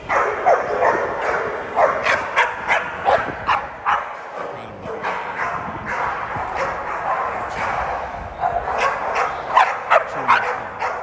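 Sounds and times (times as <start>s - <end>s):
dogs barking and yipping: 0.0s - 11.0s.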